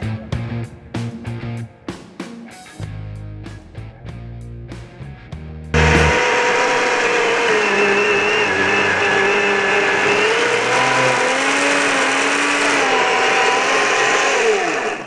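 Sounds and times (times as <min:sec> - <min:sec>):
chainsaw cutting through log: 0:05.8 - 0:15.0.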